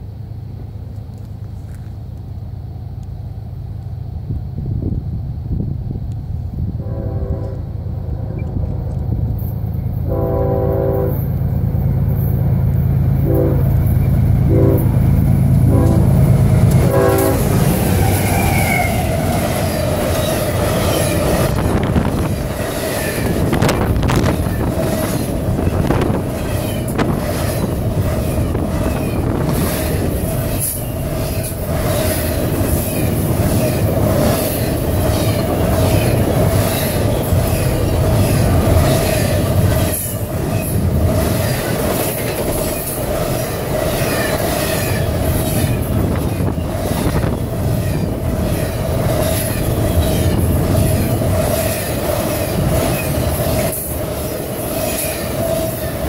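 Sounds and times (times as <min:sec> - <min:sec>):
train cars rumbling and rattling: 0:00.0 - 0:56.0
wheels clicking over rail joints: 0:13.8 - 0:56.0.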